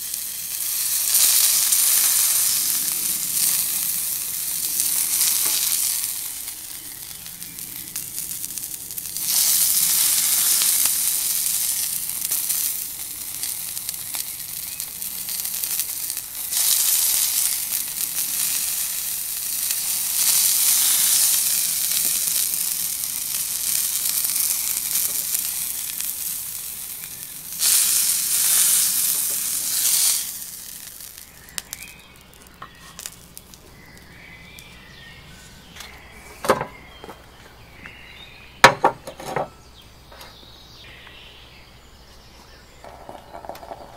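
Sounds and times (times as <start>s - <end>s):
steak sizzling in a frying pan: 0.0s - 34.9s.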